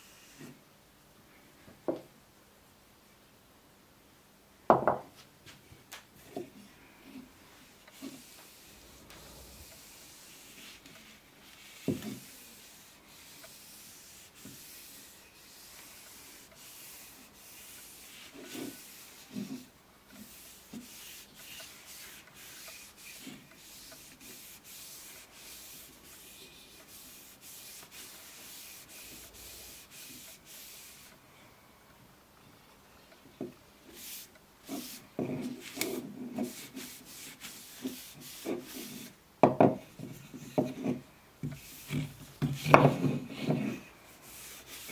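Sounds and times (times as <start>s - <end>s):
cloth rubbing on wood: 7.6s - 31.1s, 34.0s - 39.2s, 40.6s - 44.9s.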